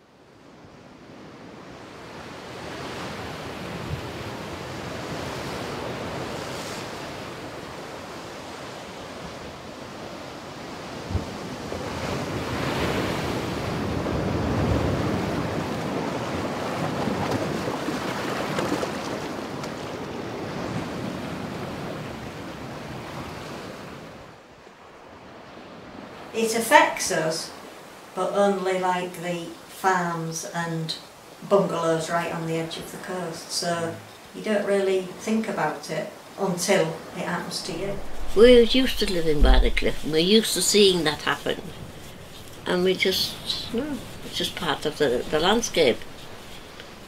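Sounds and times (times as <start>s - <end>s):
waves breaking over rocks: 1.8s - 24.1s, 37.6s - 47.0s
wind buffeting microphone: 37.6s - 47.0s.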